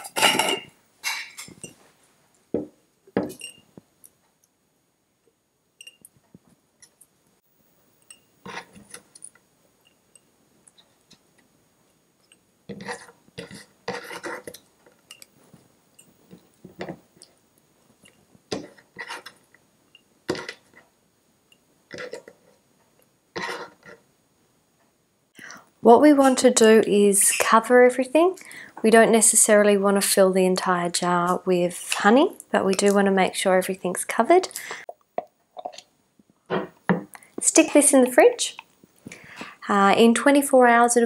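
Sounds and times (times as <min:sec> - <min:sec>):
glass jar knocks and clinks: 0:02.6 - 0:03.6.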